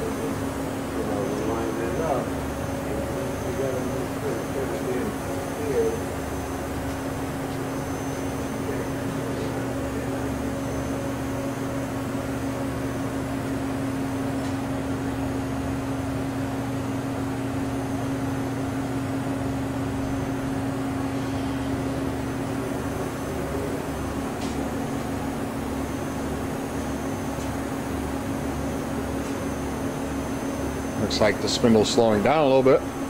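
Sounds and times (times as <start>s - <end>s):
machining center hum: 0.0s - 33.0s.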